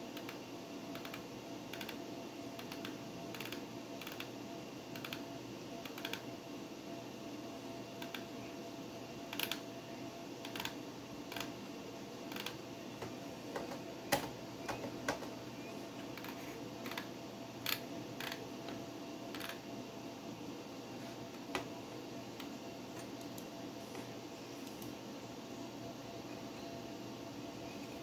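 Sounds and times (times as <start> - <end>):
computer fan hum: 0.0 - 28.0
sharp computer clicks: 0.2 - 2.0, 2.6 - 4.3, 4.9 - 6.3, 8.0 - 8.3, 9.3 - 9.6, 10.4 - 11.5, 12.3 - 12.6.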